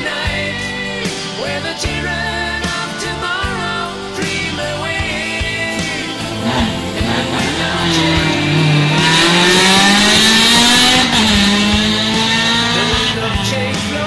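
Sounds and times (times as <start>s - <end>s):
rally car engine revving: 3.6s - 14.0s.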